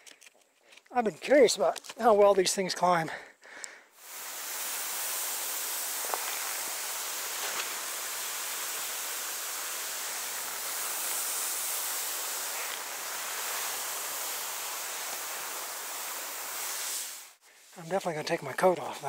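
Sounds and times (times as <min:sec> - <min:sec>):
skis hissing through snow: 0:04.0 - 0:18.0.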